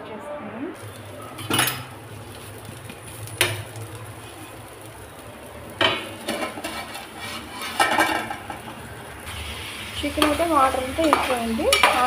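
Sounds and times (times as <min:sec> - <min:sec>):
metal lid clattering: 0:05.8 - 0:08.7
spatula working on a pan: 0:05.8 - 0:12.0.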